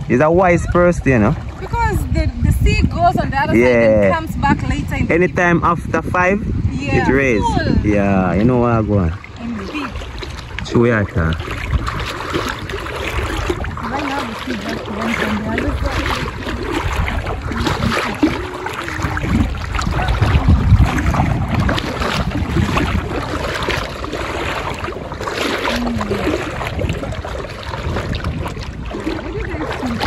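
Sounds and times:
water sloshing from wading: 0.0 - 30.0
wind rumbling on microphone: 0.0 - 30.0.

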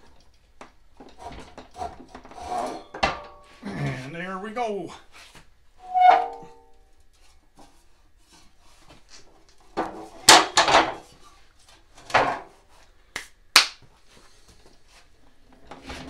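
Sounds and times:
metal frame clanking: 5.8 - 6.7.

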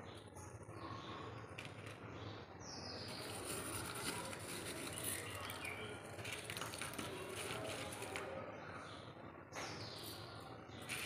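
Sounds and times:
birds chirping: 0.0 - 11.0
charcoal clicking on dry leaf: 3.1 - 8.3.

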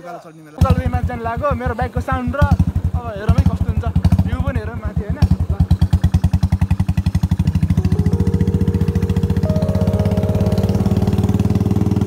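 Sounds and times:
motorcycle engine running: 0.6 - 12.0.

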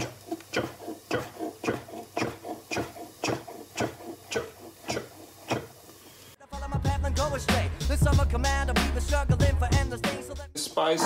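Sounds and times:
knife chopping on wooden board: 0.0 - 5.8.

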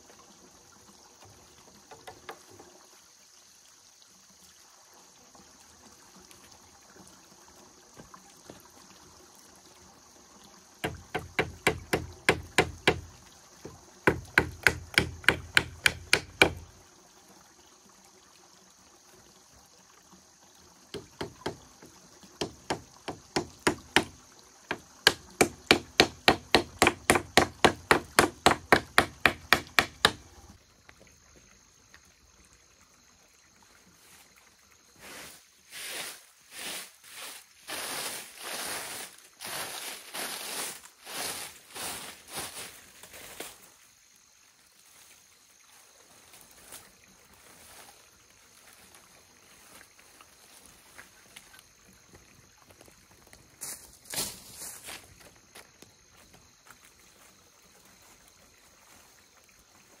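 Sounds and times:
sharp strikes on bamboo: 10.8 - 13.1, 14.1 - 16.6, 25.0 - 30.2.

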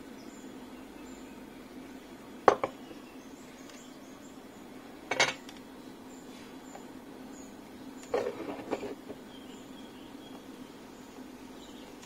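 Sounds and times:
faint steady hum: 0.0 - 12.0
tools clattering on a workbench: 5.1 - 5.5.

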